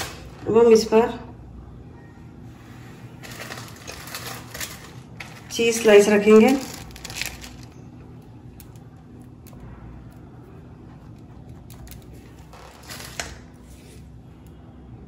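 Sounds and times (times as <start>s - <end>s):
low steady hum: 0.0s - 15.0s
plastic film crinkling: 3.2s - 8.8s.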